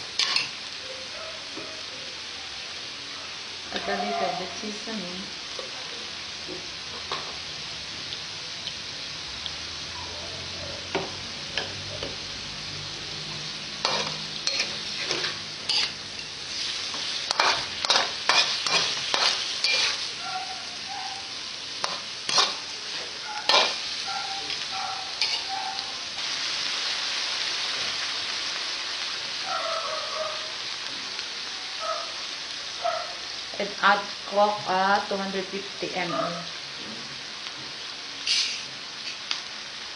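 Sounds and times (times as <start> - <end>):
food sizzling in oil: 0.0 - 39.9
metal spatula scraping a wok: 0.2 - 0.6, 13.8 - 20.2, 21.8 - 25.9, 38.2 - 39.2.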